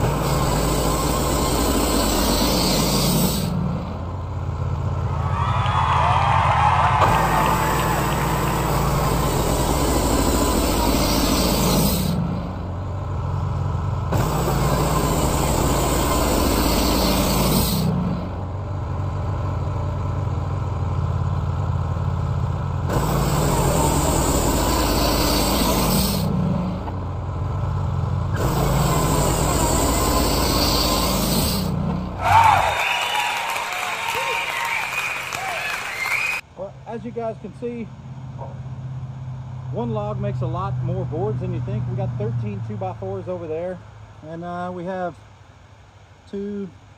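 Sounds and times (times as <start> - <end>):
band saw blade cutting wood: 0.0 - 3.6, 8.5 - 12.3, 14.1 - 18.0, 22.9 - 26.8, 28.3 - 32.0
engine humming: 0.0 - 46.9.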